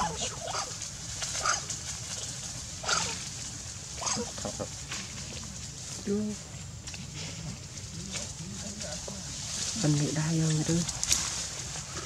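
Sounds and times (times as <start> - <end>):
monkeys squealing: 0.0 - 0.7.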